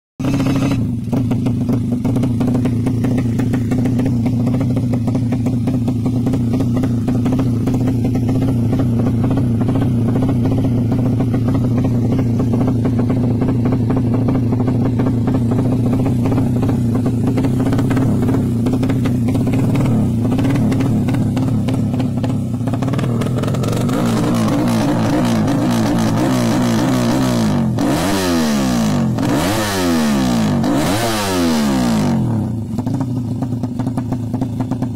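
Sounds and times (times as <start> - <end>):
motorcycle engine idling: 0.2 - 34.9.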